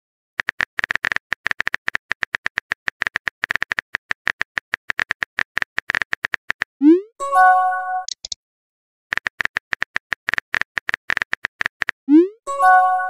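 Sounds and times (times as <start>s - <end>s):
phone keyboard typing clicks: 0.4s - 6.7s, 8.0s - 8.4s, 9.1s - 12.0s.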